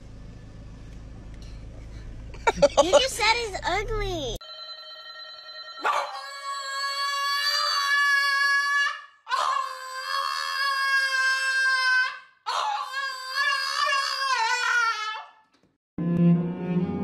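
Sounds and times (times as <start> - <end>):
dog howling: 5.8 - 8.7.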